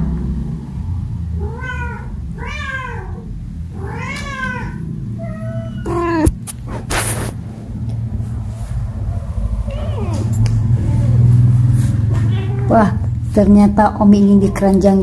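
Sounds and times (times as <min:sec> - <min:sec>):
cat meowing: 0:01.4 - 0:06.4, 0:09.7 - 0:10.4, 0:12.2 - 0:13.0.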